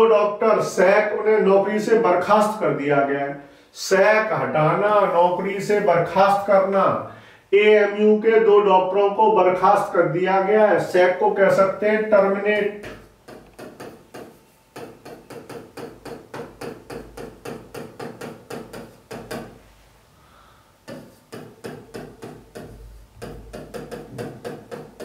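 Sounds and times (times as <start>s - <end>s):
marker tapping on a board: 12.6s - 19.6s, 20.8s - 25.0s.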